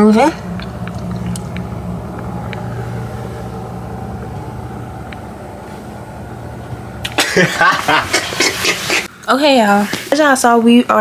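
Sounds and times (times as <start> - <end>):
churning water: 0.0 - 5.5
ship engine low rumble: 0.0 - 9.2.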